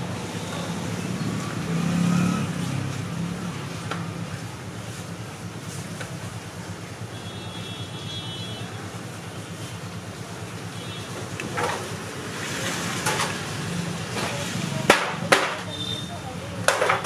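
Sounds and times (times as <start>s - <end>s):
faint voices: 8.6s - 17.0s.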